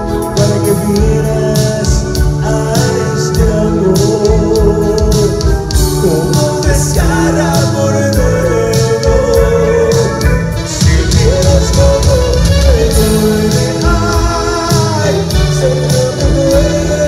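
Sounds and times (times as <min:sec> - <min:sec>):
live band playing romantic song: 0:00.0 - 0:17.0.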